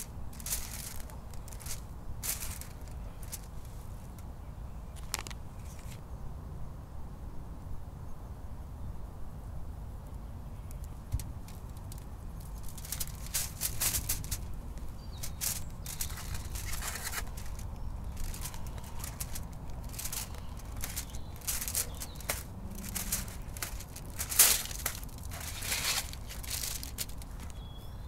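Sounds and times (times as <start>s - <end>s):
aluminium foil crinkling: 0.0s - 3.8s, 11.4s - 27.7s.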